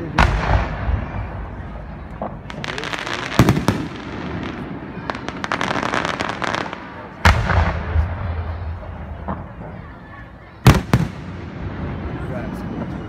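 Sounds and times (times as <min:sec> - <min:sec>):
rapid firework crackling: 0:00.1 - 0:08.6
firework shell booms: 0:00.1 - 0:09.6.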